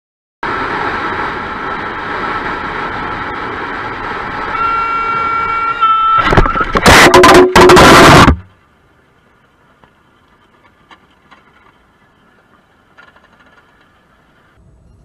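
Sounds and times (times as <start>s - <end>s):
motorcycle engine: 0.5s - 8.5s
wind noise: 0.5s - 8.5s
vehicle horn: 4.5s - 8.4s
loud crash: 6.1s - 8.5s.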